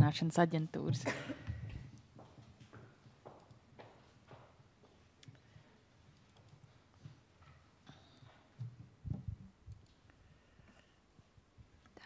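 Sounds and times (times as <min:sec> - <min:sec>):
heeled footsteps on wooden floor: 0:01.5 - 0:05.0.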